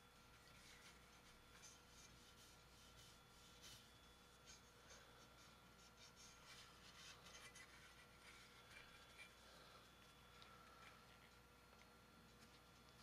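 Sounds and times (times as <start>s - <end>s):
cloth rubbing on metal: 0.2s - 9.6s.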